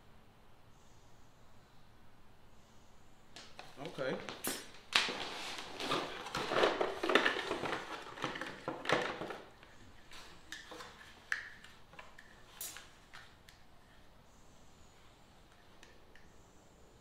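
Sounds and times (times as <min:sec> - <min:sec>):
rustling and clattering: 0:03.6 - 0:11.3.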